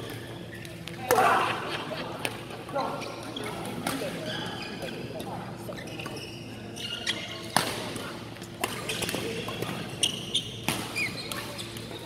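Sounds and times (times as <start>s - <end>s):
people talking: 0.6s - 10.0s
racket hitting shuttlecock: 10.6s - 11.5s.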